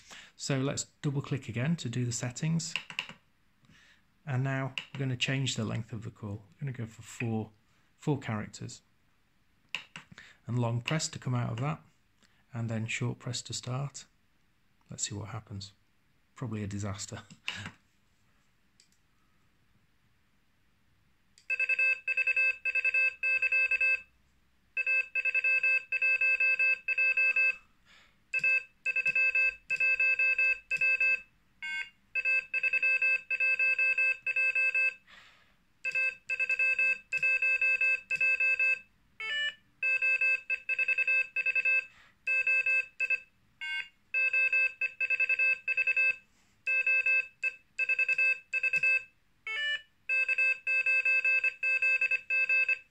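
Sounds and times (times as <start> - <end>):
morse code beeps: 24.8 - 27.6, 28.4 - 35.0, 35.9 - 52.9.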